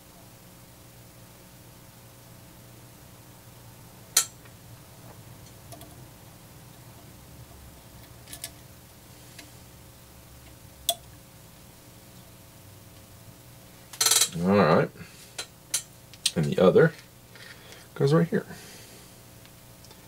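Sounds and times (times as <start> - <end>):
wire leads clicking and ticking: 5.4 - 6.0, 8.0 - 8.7, 10.4 - 11.2.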